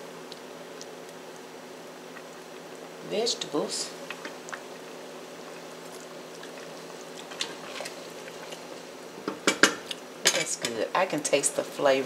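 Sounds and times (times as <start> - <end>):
low kitchen hum: 0.0 - 12.0.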